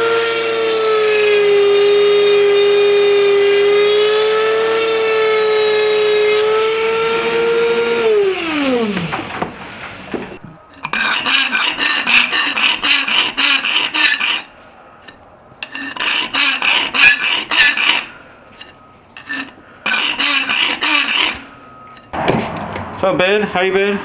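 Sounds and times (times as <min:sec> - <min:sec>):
file rasping on brass: 0:10.8 - 0:21.4.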